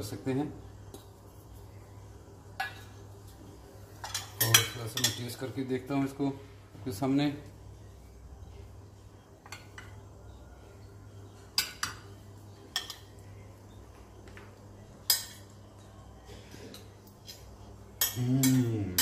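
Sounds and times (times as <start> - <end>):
metal spoon clinking on plate: 4.0 - 5.3.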